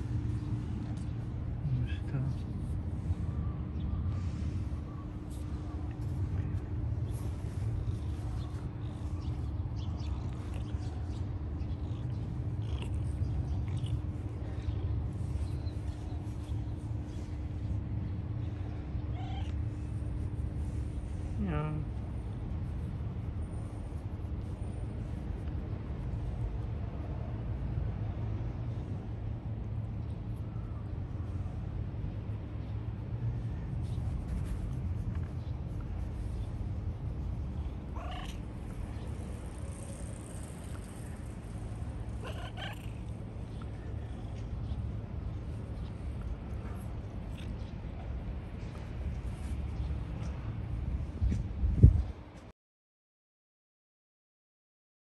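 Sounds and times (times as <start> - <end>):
cat meowing: 19.1 - 19.6, 38.0 - 38.4, 42.2 - 43.0
cat purring: 37.6 - 45.0.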